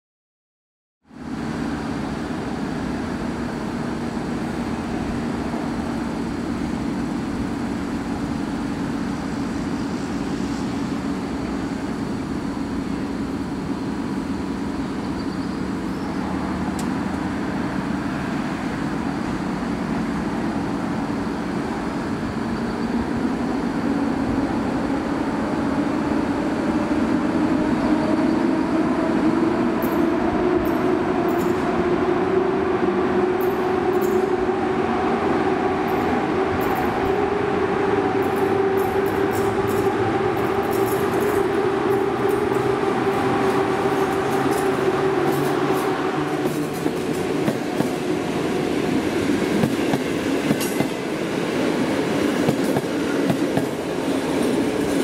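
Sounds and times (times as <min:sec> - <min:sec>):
electric locomotive humming: 0:01.0 - 0:55.0.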